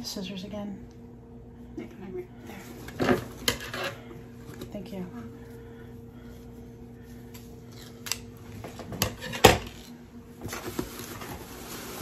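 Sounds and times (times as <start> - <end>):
clothing rustling: 9.8 - 12.0.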